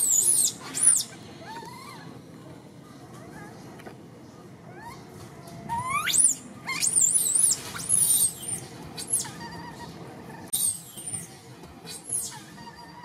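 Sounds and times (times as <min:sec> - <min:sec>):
baby monkey crying: 0:05.7 - 0:11.2, 0:11.9 - 0:13.0.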